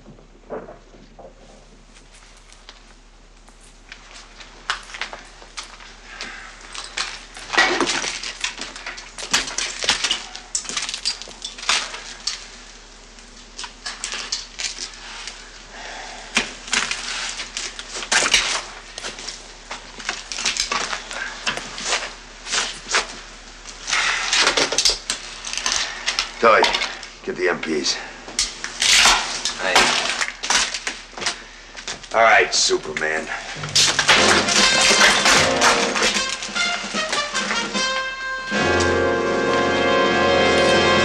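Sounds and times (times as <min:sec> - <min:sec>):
glass and metal clinking: 0:33.6 - 0:36.8.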